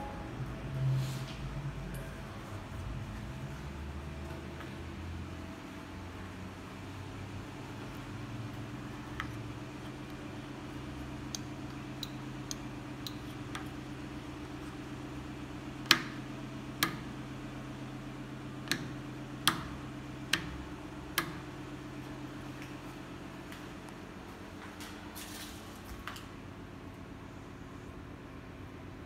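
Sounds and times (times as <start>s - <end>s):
low electrical hum: 0.0s - 29.0s
rocker switches clicking: 11.2s - 13.8s, 18.6s - 21.5s.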